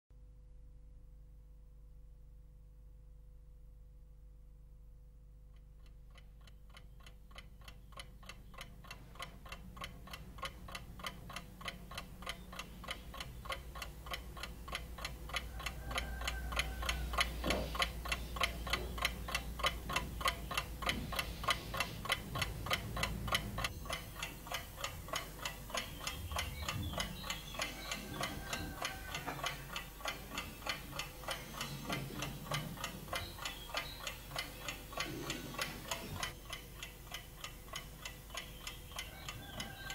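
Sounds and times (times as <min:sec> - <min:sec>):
alarm clock ticking: 0:05.8 - 0:39.9.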